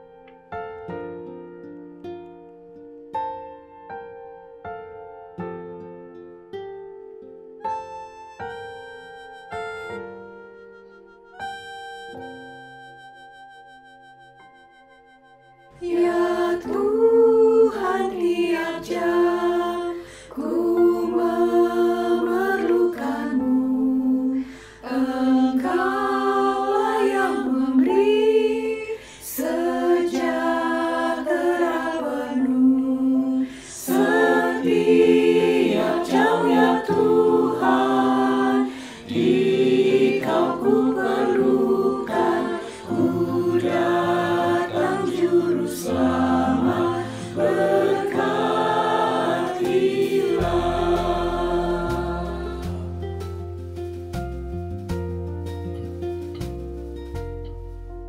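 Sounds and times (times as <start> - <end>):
women's choir singing a hymn: 15.8 - 53.1
men's lower voices singing: 29.4 - 53.0.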